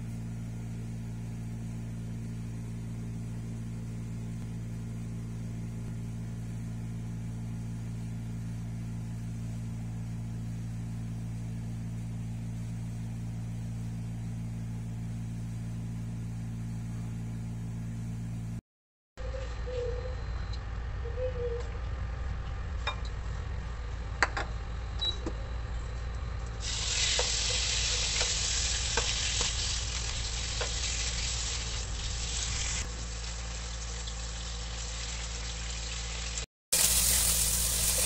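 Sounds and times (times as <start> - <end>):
steady low hum: 0.0 - 18.6, 19.2 - 35.2.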